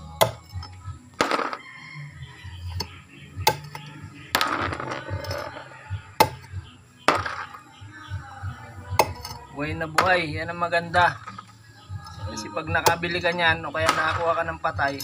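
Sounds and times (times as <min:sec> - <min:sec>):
sharp knocks of chopping: 0:02.8 - 0:03.8, 0:06.2 - 0:06.5.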